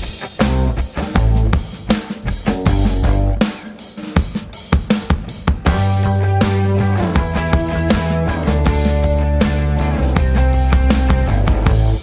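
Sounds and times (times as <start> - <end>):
drum hits: 0.0 - 12.0
electric guitar chords: 0.0 - 12.0.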